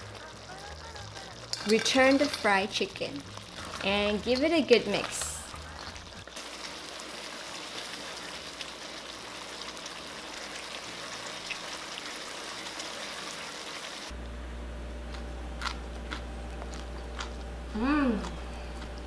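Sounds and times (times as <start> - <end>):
sauce sizzling in a wok: 0.0 - 14.2
low room hum: 14.1 - 19.0.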